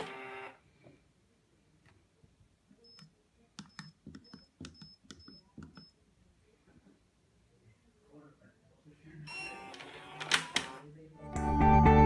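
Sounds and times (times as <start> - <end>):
keypad button clicks with beeps: 2.8 - 6.0.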